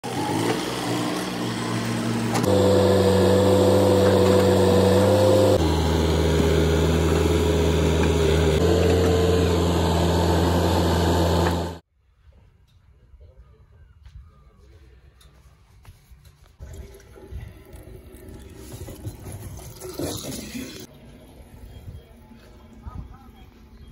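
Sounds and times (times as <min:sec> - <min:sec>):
diesel tractor engines running: 0:00.0 - 0:11.8.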